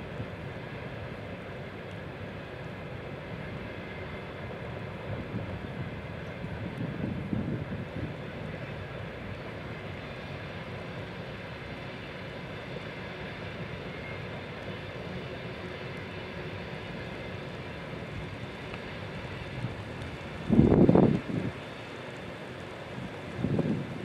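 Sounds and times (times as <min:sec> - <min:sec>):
distant freight train rumbling: 0:00.0 - 0:24.0
wind buffeting microphone: 0:04.8 - 0:10.0, 0:18.0 - 0:21.9, 0:22.6 - 0:24.0.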